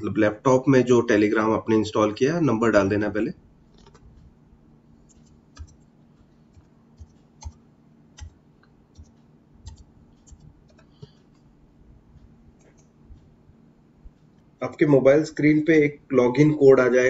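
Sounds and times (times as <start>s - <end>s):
faint steady hum: 0.0s - 17.0s
keyboard keys clicking: 5.1s - 5.8s, 6.5s - 7.6s, 8.2s - 11.4s.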